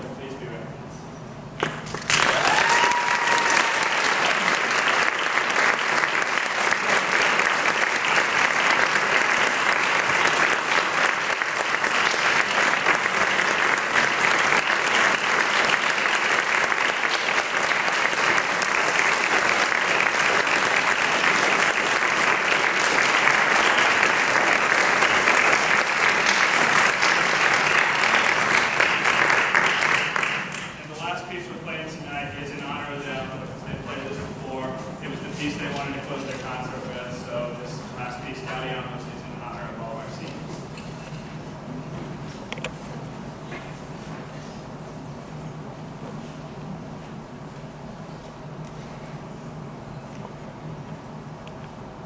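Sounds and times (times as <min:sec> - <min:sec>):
audience applauding: 0:01.6 - 0:30.8.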